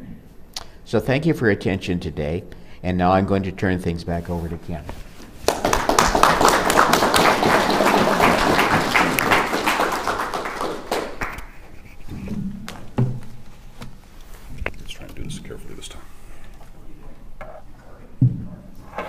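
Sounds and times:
audience applauding: 5.4s - 11.5s.

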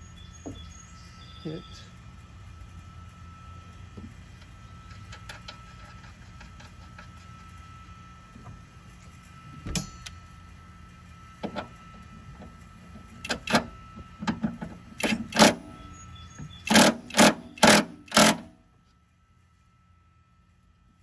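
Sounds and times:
cordless power tool bursts: 16.5s - 18.6s.

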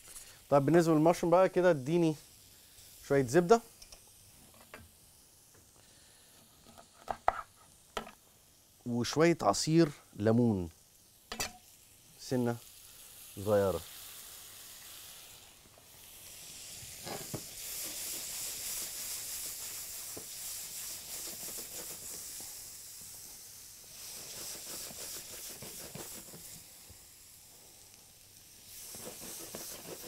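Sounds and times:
mushrooms sizzling in butter: 0.0s - 30.0s
spatula stirring in a pan: 17.0s - 22.6s, 24.0s - 26.7s, 28.7s - 30.0s.

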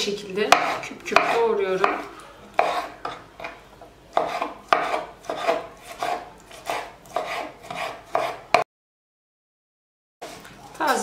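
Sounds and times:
knife chopping on wooden board: 0.5s - 8.7s.

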